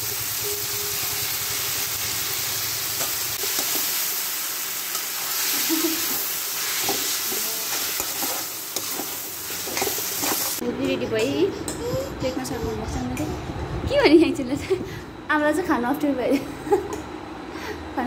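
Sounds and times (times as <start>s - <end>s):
food sizzling in a wok: 0.0s - 10.6s
metal spatula scraping a wok: 4.9s - 10.6s.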